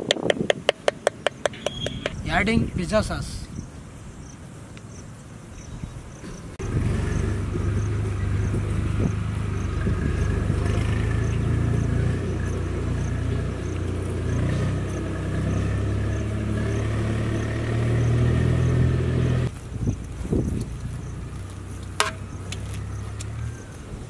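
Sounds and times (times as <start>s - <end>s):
engine running steadily: 6.6s - 24.0s.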